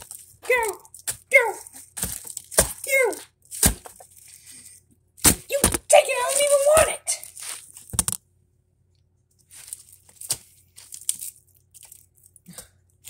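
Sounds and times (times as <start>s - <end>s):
lettuce leaves tearing: 0.7s - 7.8s.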